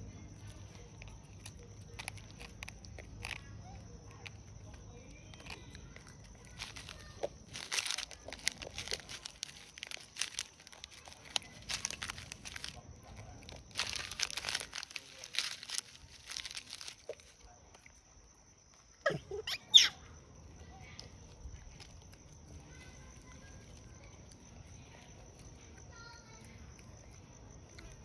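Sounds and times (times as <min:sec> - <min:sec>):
snack wrapper crinkling: 0:00.2 - 0:17.6.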